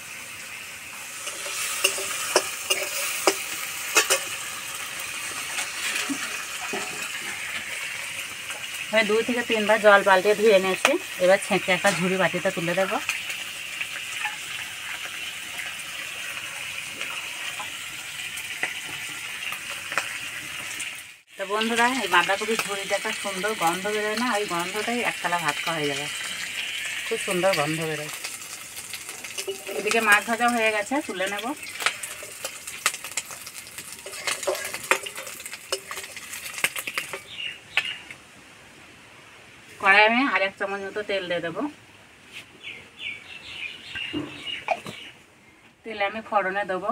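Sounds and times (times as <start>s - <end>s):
prawns sizzling in oil: 0.0s - 38.2s
metal spatula scraping and clinking: 1.2s - 4.4s, 5.4s - 7.4s, 14.2s - 14.6s, 29.2s - 30.1s, 31.7s - 37.2s
water dripping: 21.6s - 38.2s.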